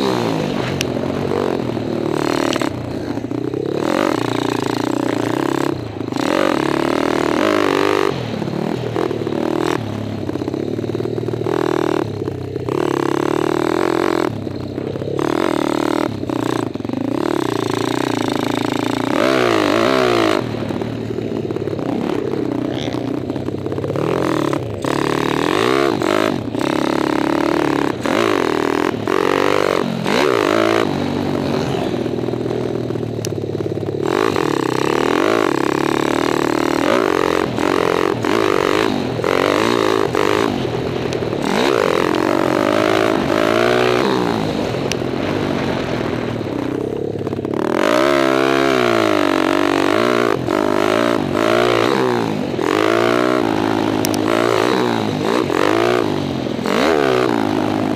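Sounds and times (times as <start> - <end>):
dirt bike engine revving: 0.0 - 57.9
wind rush: 40.1 - 47.2.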